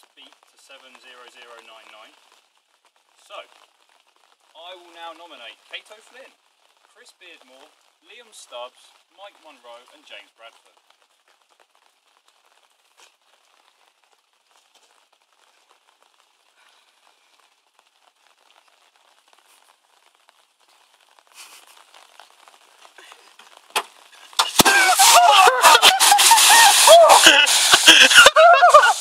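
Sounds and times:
water pouring out: 0.0 - 29.0
man crying out: 24.4 - 29.0.

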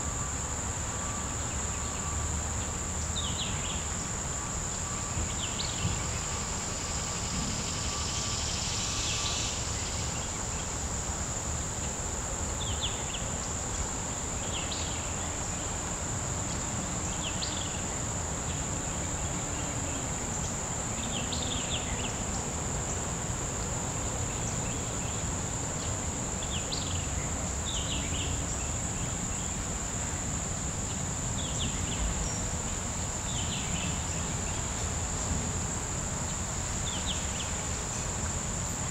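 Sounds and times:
short insect chirps: 0.0 - 10.8
insects trilling: 0.0 - 38.9.

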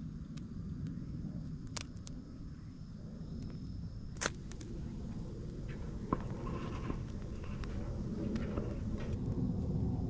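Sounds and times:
campfire crackling: 0.0 - 2.5, 3.4 - 9.8
low rumble: 0.0 - 10.0
burning wood popping: 4.2 - 9.4.

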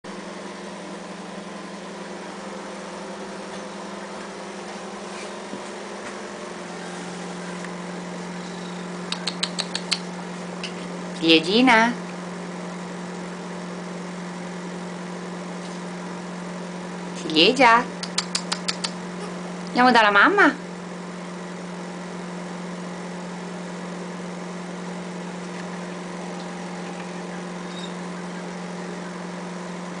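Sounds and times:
appliance motor humming: 0.1 - 30.0
faint sharp clicks: 9.1 - 10.0.

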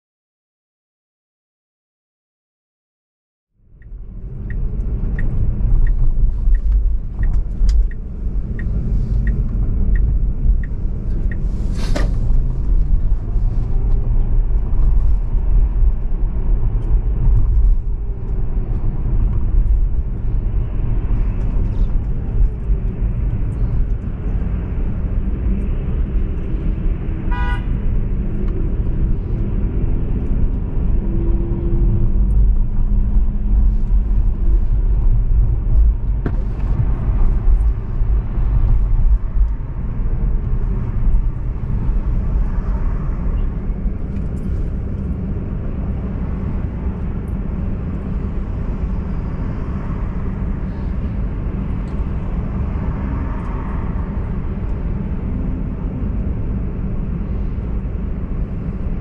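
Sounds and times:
car road rumble: 3.6 - 59.0
car horn toot: 27.3 - 27.7.

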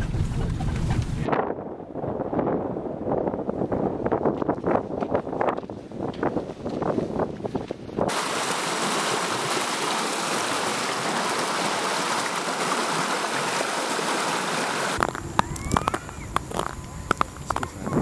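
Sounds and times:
stream rushing over rocks: 8.1 - 18.0.

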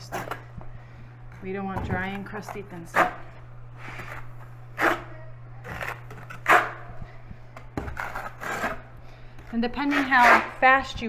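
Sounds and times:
steady low hum: 0.0 - 11.0
trowel scraping mortar: 3.9 - 5.1, 7.9 - 8.9, 9.8 - 10.6.

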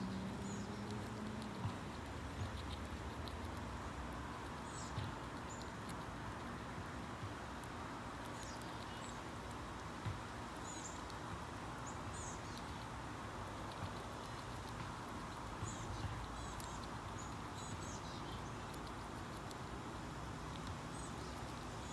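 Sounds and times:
outdoor background hiss: 0.0 - 21.9
small birds chirping: 0.0 - 21.9.

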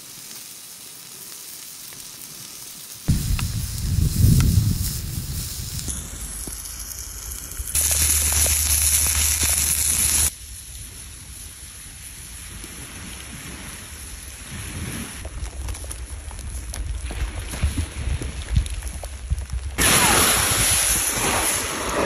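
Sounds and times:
steak sizzling on hot plate: 0.0 - 10.3
loud hiss: 2.5 - 10.4, 19.8 - 22.0.

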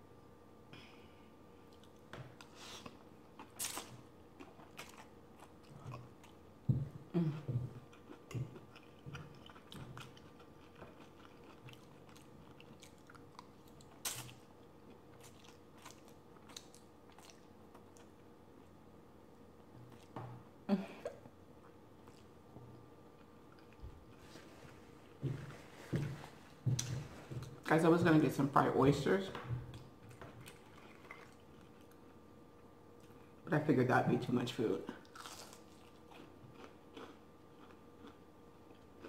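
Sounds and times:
person chewing noodles: 1.6 - 18.8, 21.6 - 26.0, 29.7 - 32.2, 35.0 - 39.0.

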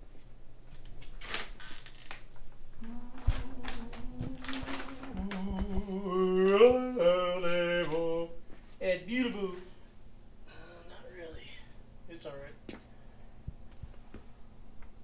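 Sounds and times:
man humming: 2.8 - 8.4, 10.5 - 11.1.

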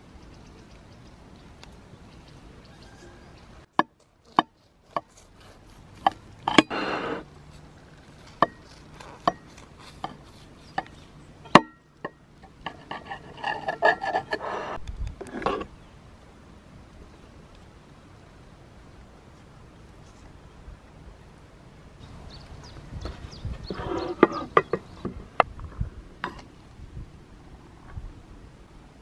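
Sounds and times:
crust crunching and crackling: 3.7 - 11.3
knife cracking crisp crust: 4.2 - 6.2, 7.5 - 11.1.

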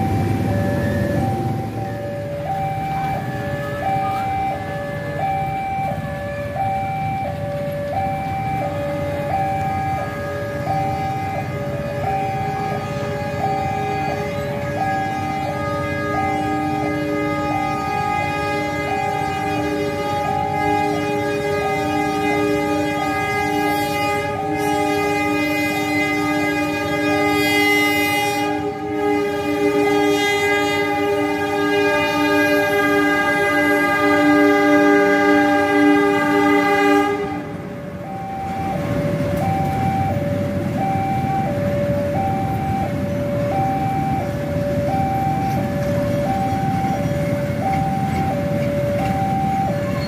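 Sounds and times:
level crossing alarm two-tone: 0.0 - 26.2, 38.0 - 50.0
road traffic: 0.0 - 50.0.

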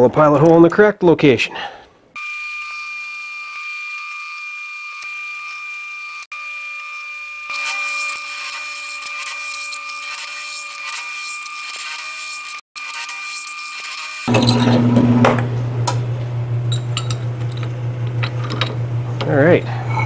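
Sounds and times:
drill cutting steel: 2.2 - 15.0.

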